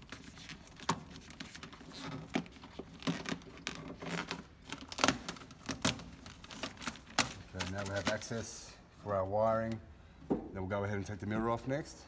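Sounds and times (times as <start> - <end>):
plastic sheet crinkling and tearing: 0.0 - 8.4.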